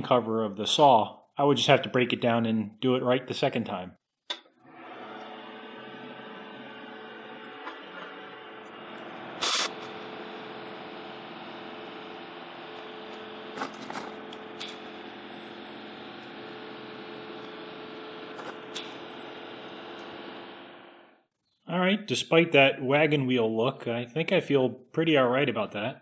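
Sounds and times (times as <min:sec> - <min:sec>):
welder electric hum: 0:04.3 - 0:21.3
loud short crackle: 0:09.4 - 0:10.0.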